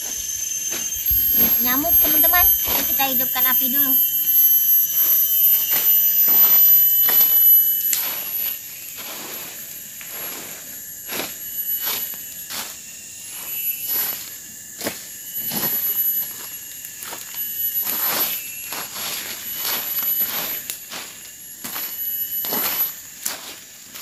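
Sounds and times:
high insect drone: 0.0s - 24.0s
stick raking dry leaves: 4.9s - 10.5s.

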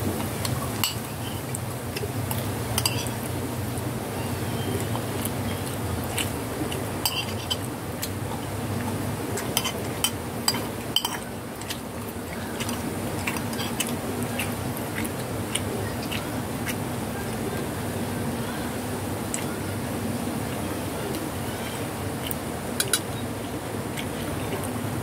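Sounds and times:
cats chewing crunchy snack: 11.5s - 17.6s.

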